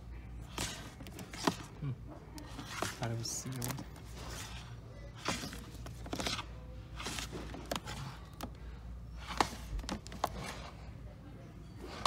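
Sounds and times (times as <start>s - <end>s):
plastic cases clacking and scraping: 0.4s - 1.8s, 2.4s - 4.6s, 5.2s - 10.8s.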